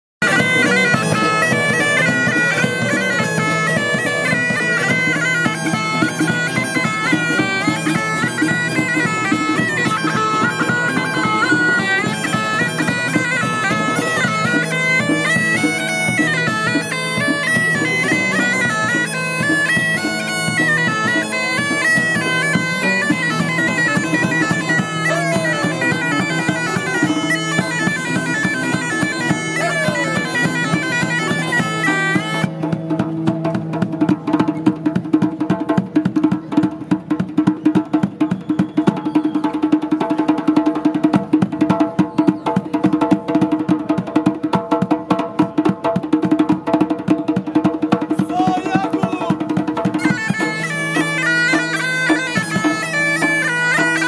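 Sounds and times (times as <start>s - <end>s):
bagpipe playing a melody: 0.2s - 32.5s, 48.3s - 54.0s.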